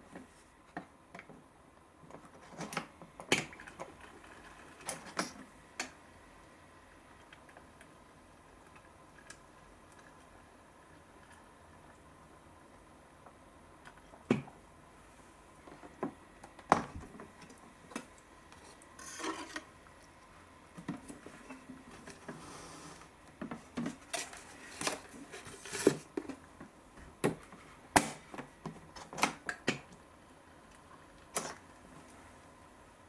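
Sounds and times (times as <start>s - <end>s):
paper cups being handled: 20.8s - 26.5s.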